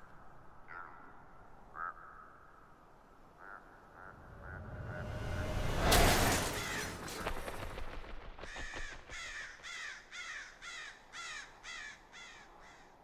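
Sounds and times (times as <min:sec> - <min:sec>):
crow cawing: 0:00.6 - 0:04.7, 0:06.5 - 0:07.0, 0:08.4 - 0:13.0
loud rushing noise: 0:04.6 - 0:08.1.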